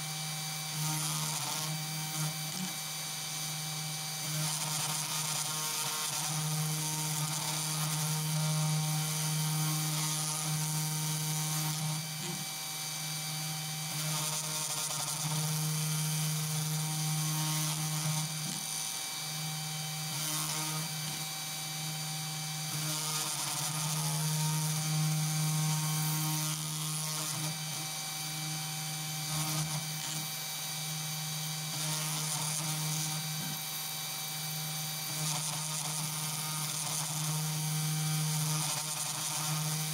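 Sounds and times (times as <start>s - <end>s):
mill spindle motor whine: 10.6s - 20.1s, 20.8s - 26.2s, 27.4s - 31.8s.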